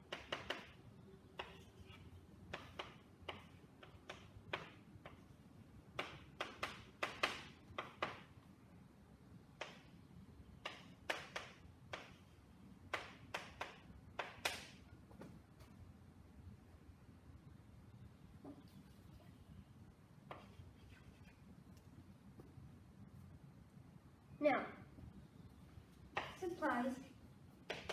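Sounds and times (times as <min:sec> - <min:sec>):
chalk tapping on blackboard: 0:00.0 - 0:08.3, 0:09.6 - 0:09.9, 0:10.6 - 0:15.3, 0:20.2 - 0:21.3, 0:27.6 - 0:27.9
chalk scratching strokes: 0:20.3 - 0:21.5.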